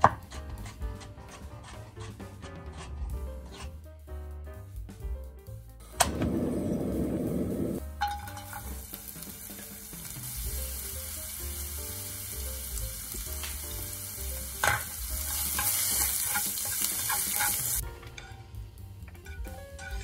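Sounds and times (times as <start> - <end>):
chopsticks stirring in a pan: 0.0 - 3.8, 8.0 - 20.0
vegetables sizzling in a frying pan: 7.8 - 20.0.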